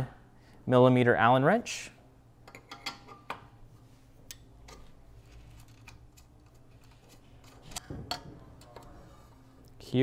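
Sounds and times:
metal tools clicking and tapping: 0:02.4 - 0:03.4, 0:05.6 - 0:08.9.

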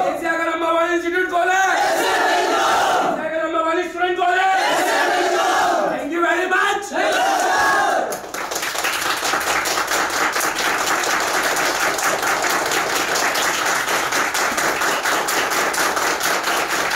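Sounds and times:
loud group shout: 0:01.7 - 0:03.2, 0:04.5 - 0:05.9, 0:06.9 - 0:08.1
group applause: 0:07.0 - 0:16.9.

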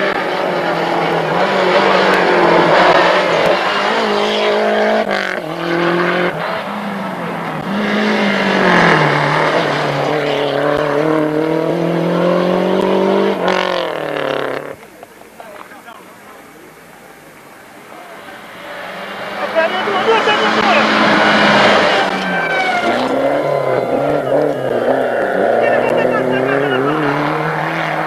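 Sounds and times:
rally car engine revving: 0:00.0 - 0:16.5, 0:17.3 - 0:28.0.

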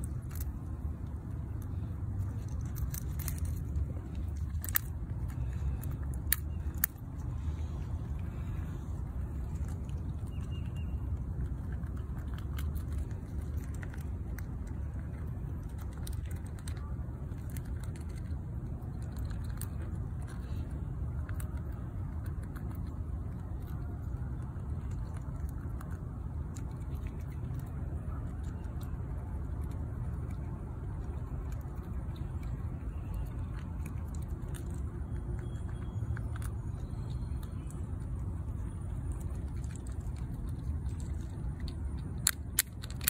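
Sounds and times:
squirrel gnawing at food: 0:00.0 - 0:43.0.

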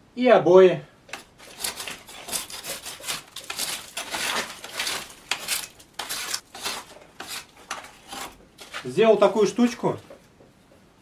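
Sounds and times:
metal spatula scraping wall: 0:01.2 - 0:09.0.

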